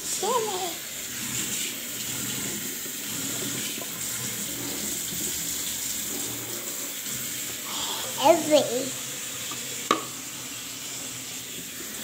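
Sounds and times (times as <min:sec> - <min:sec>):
tap water splashing into jar: 0:09.5 - 0:10.2.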